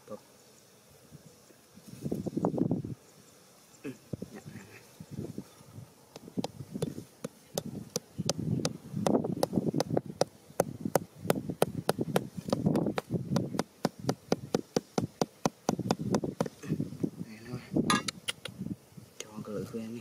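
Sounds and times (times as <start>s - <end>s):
hammer tapping stake into soil: 6.1s - 16.6s.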